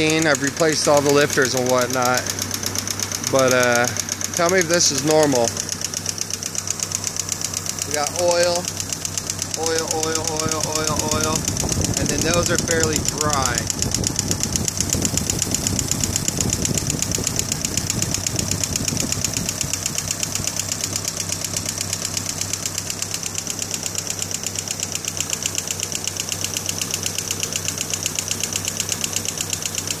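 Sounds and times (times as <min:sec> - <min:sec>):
engine idling: 0:00.0 - 0:30.0
fast even valvetrain ticking: 0:00.0 - 0:30.0.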